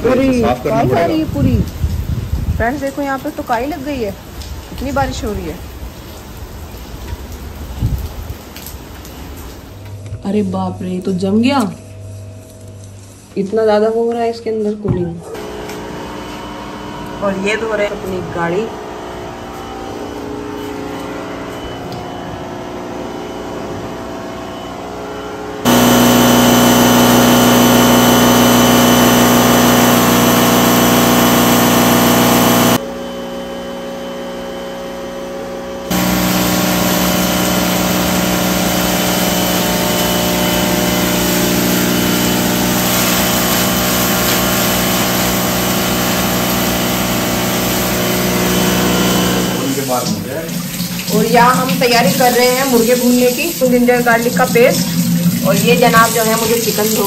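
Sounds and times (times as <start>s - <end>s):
pressure washer running: 15.4s - 19.7s, 23.9s - 57.0s.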